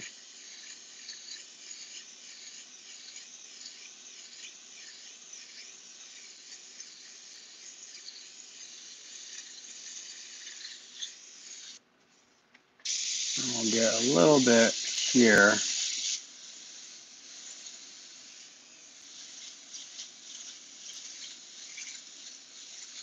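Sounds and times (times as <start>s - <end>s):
airbrush hissing: 0.0s - 11.8s, 12.8s - 23.0s.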